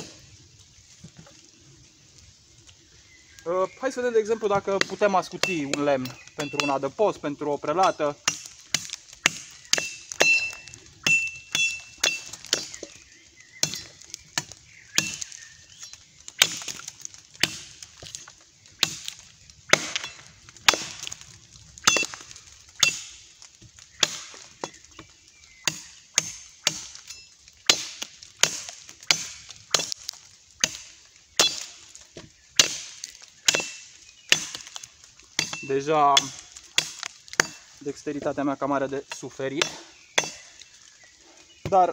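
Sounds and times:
machete chopping wood: 0:07.8 - 0:13.0, 0:13.6 - 0:15.4, 0:16.4 - 0:18.1, 0:18.8 - 0:21.2, 0:21.8 - 0:24.8, 0:25.6 - 0:37.7, 0:39.6 - 0:40.5.

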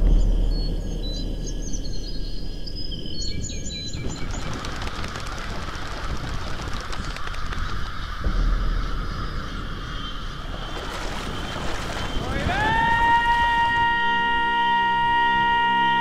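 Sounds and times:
birds whistling: 0:00.0 - 0:04.9, 0:07.0 - 0:16.0
low rumble: 0:00.0 - 0:12.4
flock of birds chattering in flight: 0:03.3 - 0:12.9.

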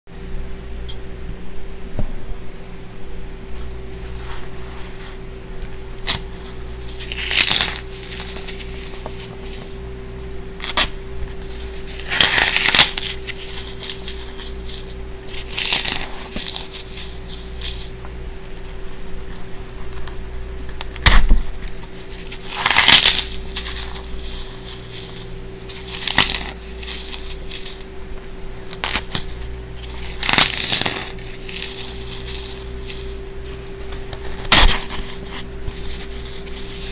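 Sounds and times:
floral foam crunching: 0:04.1 - 0:09.8, 0:10.6 - 0:20.3, 0:21.9 - 0:36.9
sharp crack: 0:34.4 - 0:35.0.

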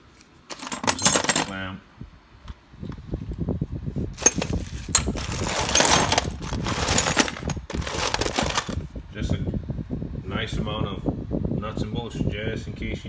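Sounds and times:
metal nuts and bolts clattering: 0:00.5 - 0:01.7, 0:04.2 - 0:08.8.

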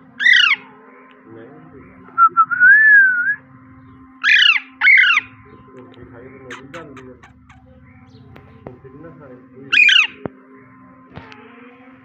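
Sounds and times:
parakeet squawking: 0:05.9 - 0:08.6.

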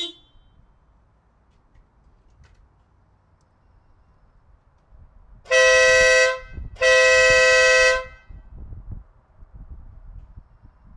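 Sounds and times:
dual-tone air horn blasts: 0:00.0 - 0:00.6, 0:05.5 - 0:08.5.

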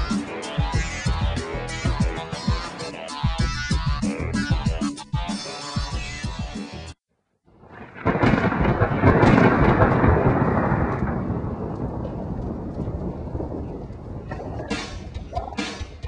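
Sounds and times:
thunder rumble: 0:07.5 - 0:16.0
steady rain: 0:07.6 - 0:15.0.

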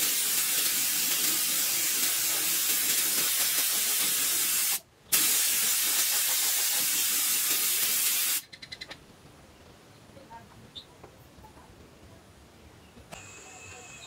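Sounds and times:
spray hissing from nozzle: 0:00.0 - 0:08.4.

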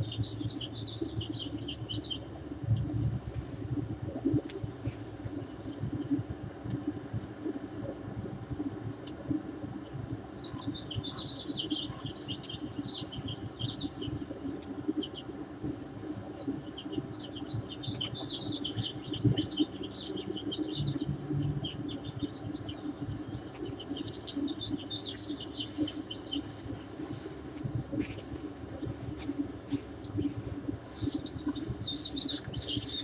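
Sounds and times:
small birds chirping: 0:00.0 - 0:03.0, 0:09.8 - 0:33.0
steady low rumble: 0:00.0 - 0:33.0.

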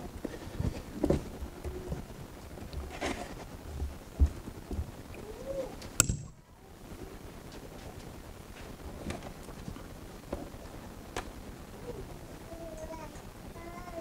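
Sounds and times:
rustling: 0:00.0 - 0:14.0
sharp click: 0:06.0 - 0:06.4.

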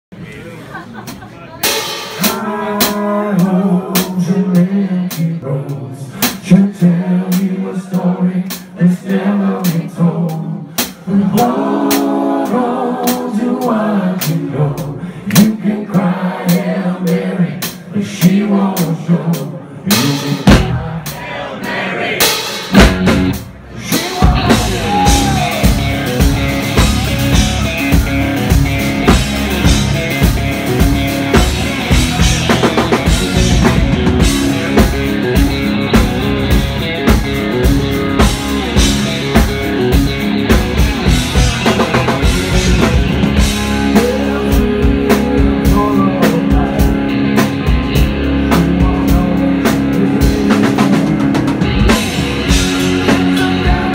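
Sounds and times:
live rock band playing: 0:00.9 - 0:05.5, 0:16.5 - 0:53.9.

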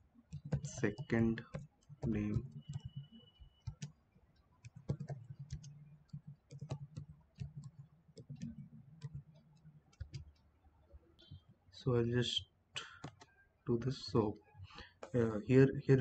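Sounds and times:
keyboard key clicks: 0:12.8 - 0:13.3.

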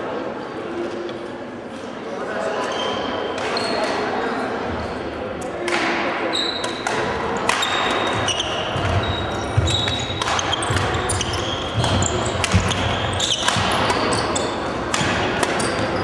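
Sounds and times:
hum of a large hall: 0:00.0 - 0:16.0
rackets striking shuttlecock: 0:05.5 - 0:16.0
shoes squeaking on wooden floor: 0:07.7 - 0:14.8.

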